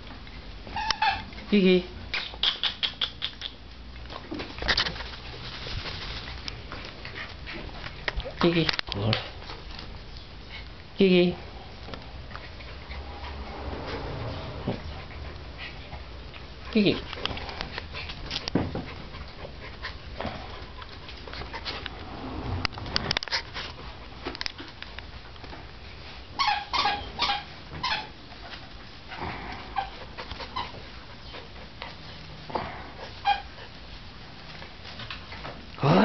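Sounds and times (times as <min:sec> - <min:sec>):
puppies yipping and whimpering: 0:26.4 - 0:28.2.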